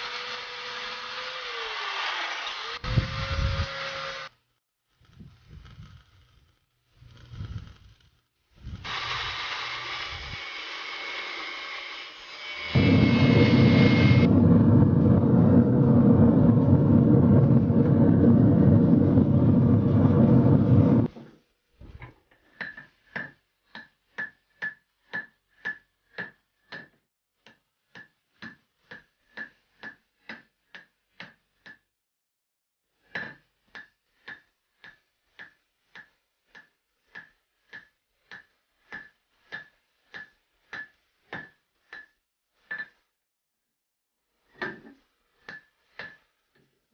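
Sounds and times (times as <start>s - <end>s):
loud steady rushing noise: 12.8s - 21.1s.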